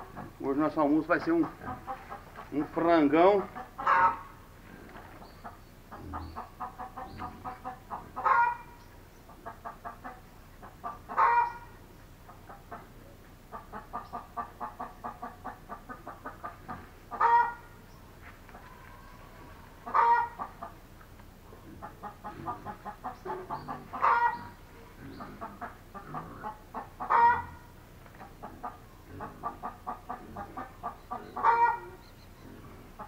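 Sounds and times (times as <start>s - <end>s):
chicken clucking: 0.0s - 33.0s
chicken squawking: 3.2s - 4.5s, 5.4s - 12.9s, 13.5s - 17.8s, 18.6s - 20.8s, 21.6s - 27.8s, 28.4s - 33.0s.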